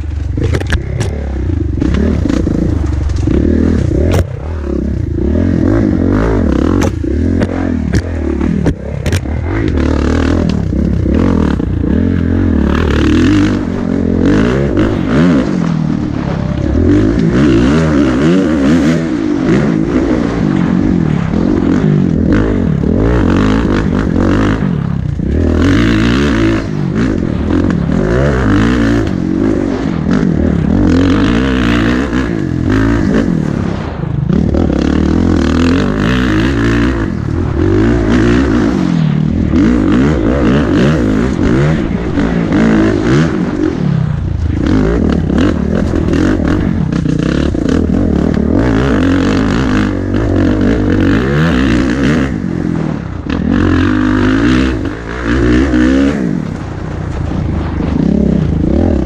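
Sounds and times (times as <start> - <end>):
dirt bike engine revving: 0.0 - 59.0
rattling over rough ground: 0.0 - 59.0
wind noise: 0.0 - 59.0.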